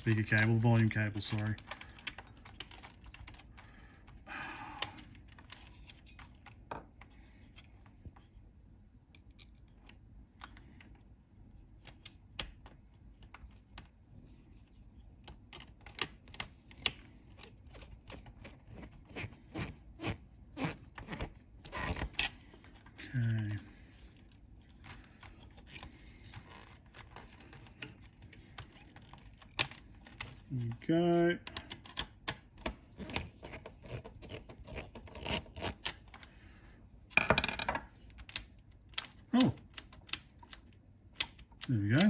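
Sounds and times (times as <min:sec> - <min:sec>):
wires clicking into place: 0:00.0 - 0:04.2, 0:15.0 - 0:19.8, 0:20.6 - 0:30.8, 0:38.0 - 0:42.0.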